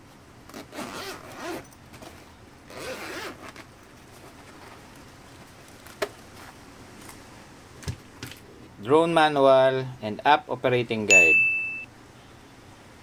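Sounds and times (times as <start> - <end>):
bag handling rustle: 0.4 - 7.2
zipper pulled open: 0.5 - 4.8.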